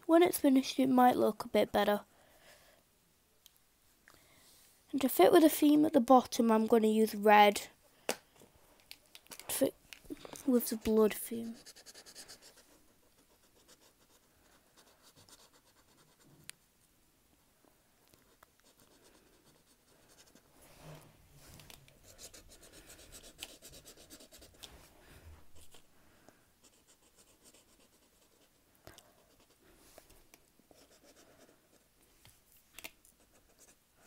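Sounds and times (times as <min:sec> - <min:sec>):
marker scratching on paper: 0:10.5 - 0:16.5, 0:18.2 - 0:20.5, 0:22.0 - 0:24.6, 0:30.7 - 0:31.8.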